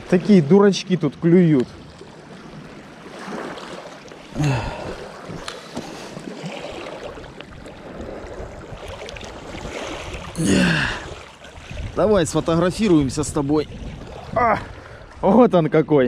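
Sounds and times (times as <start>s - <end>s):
water splashing and lapping: 0.0s - 15.9s
person grunting: 4.4s - 5.0s, 10.4s - 11.1s.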